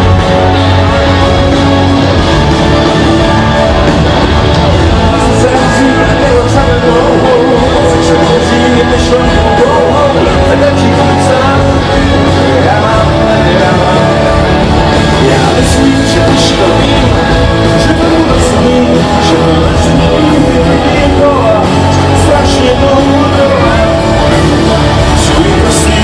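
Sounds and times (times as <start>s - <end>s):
drums: 0.0s - 26.0s
electric guitars: 0.0s - 26.0s
keyboard: 0.0s - 26.0s
person singing: 0.0s - 26.0s.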